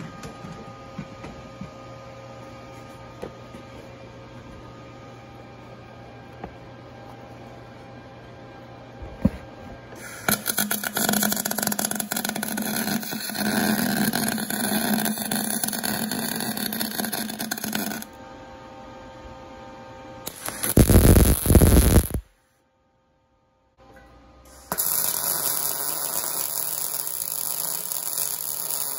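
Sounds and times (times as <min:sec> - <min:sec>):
welding arc crackling: 0:10.0 - 0:18.1, 0:20.3 - 0:22.2, 0:24.5 - 0:28.9.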